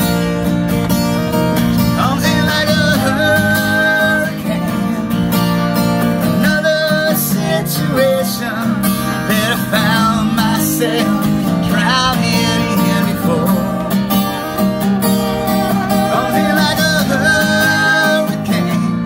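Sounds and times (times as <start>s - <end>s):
acoustic guitar strumming: 0.0s - 19.0s
man and woman singing: 15.8s - 18.9s.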